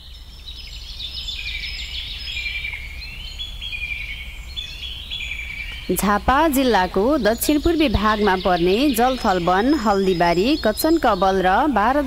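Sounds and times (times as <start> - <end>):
birds calling: 0.0 - 12.0
low steady hum: 0.0 - 12.0.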